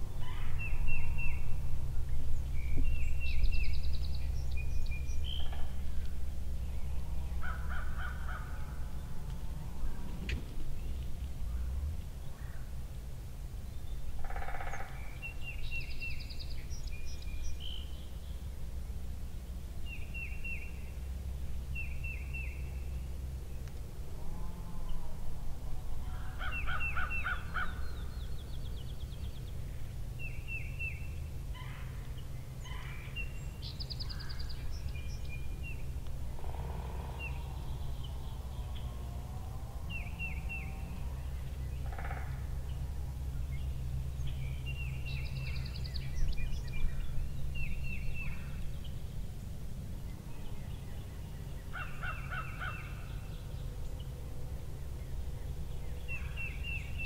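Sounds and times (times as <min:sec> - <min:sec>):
songbird phrases: 0:00.0 - 0:12.9, 0:13.5 - 0:19.0, 0:19.8 - 0:23.8, 0:25.8 - 0:57.0
low wind rumble: 0:00.0 - 0:57.0
harsh bird calls: 0:14.0 - 0:18.0, 0:26.0 - 0:29.7, 0:30.4 - 0:49.0, 0:50.2 - 0:54.1.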